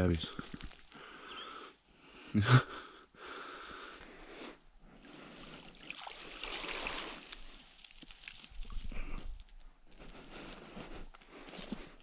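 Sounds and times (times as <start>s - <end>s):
water sloshing: 5.2s - 9.6s.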